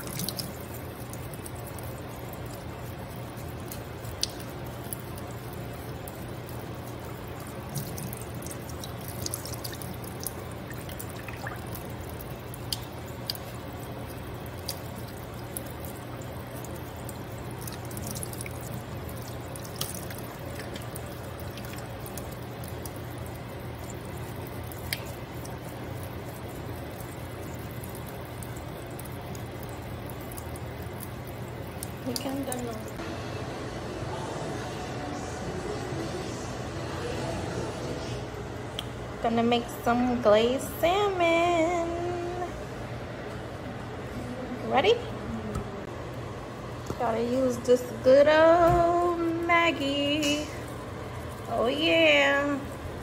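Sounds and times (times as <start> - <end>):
tap water running into sink: 0.0 - 32.9.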